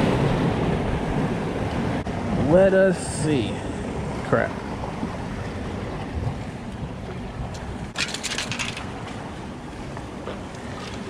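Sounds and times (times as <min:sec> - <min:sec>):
surf rumbling: 0:00.0 - 0:11.0
crackling clatter: 0:07.9 - 0:09.0.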